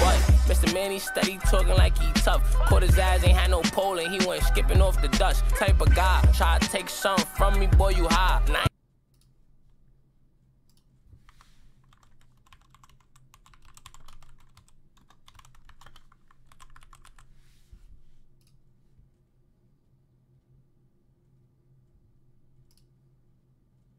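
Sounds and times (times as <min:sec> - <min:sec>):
typing on computer keyboard: 0:10.7 - 0:17.3.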